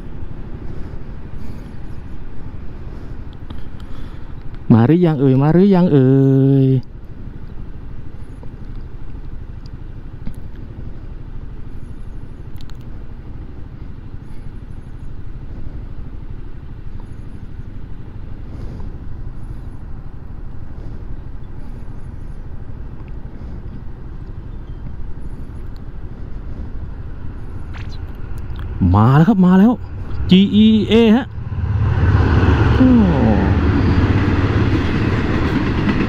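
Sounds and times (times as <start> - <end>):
scooter engine idling: 6.9 - 28.4.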